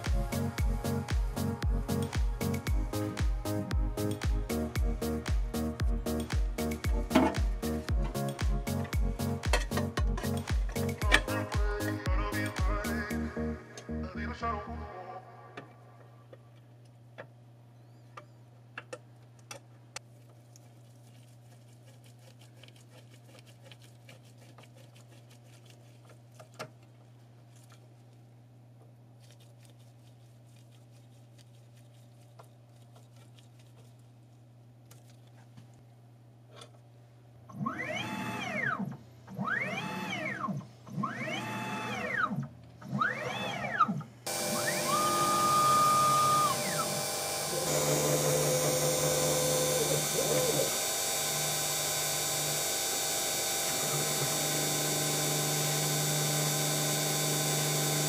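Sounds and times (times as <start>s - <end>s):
stepper motor whine: 37.5s - 58.0s.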